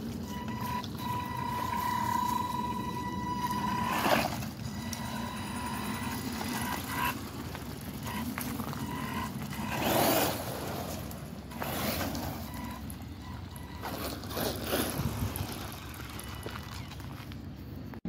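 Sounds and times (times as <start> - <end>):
tyres rushing over dirt: 0.0 - 18.0
electric motor whining: 0.2 - 10.9.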